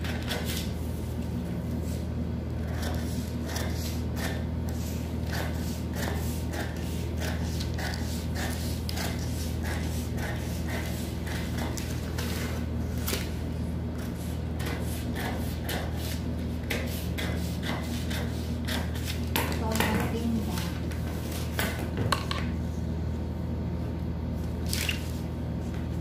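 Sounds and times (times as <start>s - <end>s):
steady low hum: 0.0s - 26.0s
scissors snipping paper: 2.6s - 12.4s.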